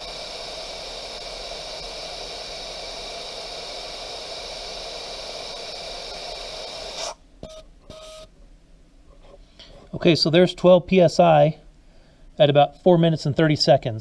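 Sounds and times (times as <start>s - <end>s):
air hissing from tires: 0.0s - 7.2s.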